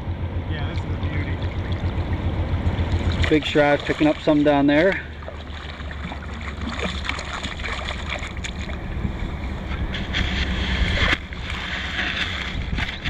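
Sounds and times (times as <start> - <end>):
river water rushing and splashing: 0.8 - 13.0
wind rumbling on microphone: 5.5 - 13.0.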